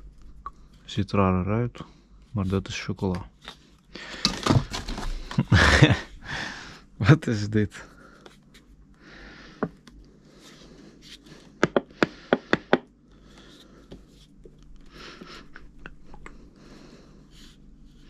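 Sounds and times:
packaging rustling: 4.1 - 5.5.

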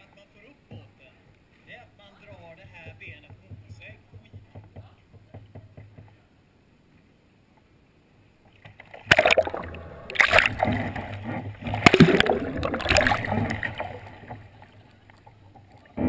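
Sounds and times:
kayak splash: 8.5 - 16.0
churning gurgling water: 8.6 - 16.0.

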